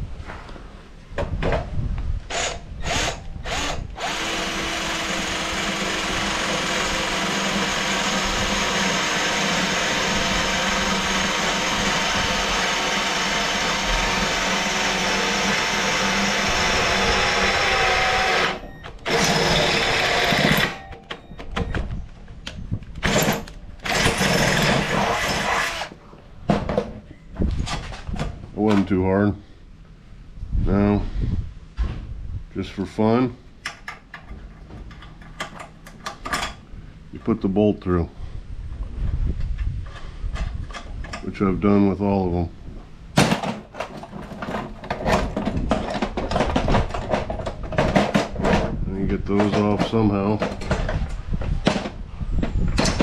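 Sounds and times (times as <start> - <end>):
cordless drill boring through steel: 2.3 - 20.9, 23.0 - 26.0.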